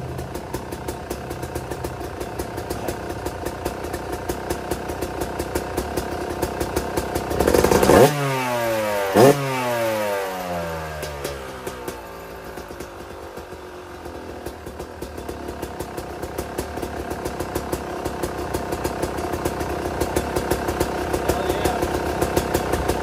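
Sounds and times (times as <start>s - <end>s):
two-stroke engine idling: 0.0s - 23.0s
engine revving: 5.9s - 13.6s, 17.3s - 23.0s.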